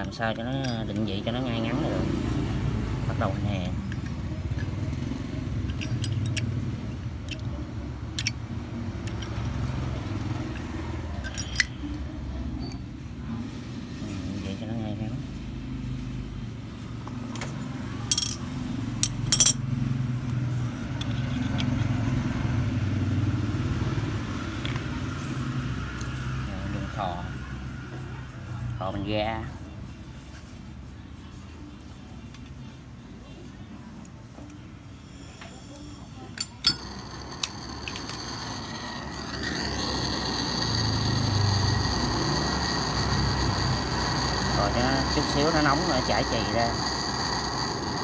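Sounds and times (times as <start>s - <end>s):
metallic clicks and clinks: 3.8s - 6.6s, 7.2s - 8.4s, 10.5s - 12.0s, 18.1s - 18.4s, 19.0s - 19.6s, 36.4s - 48.0s
gas torch flame hissing: 35.0s - 48.0s.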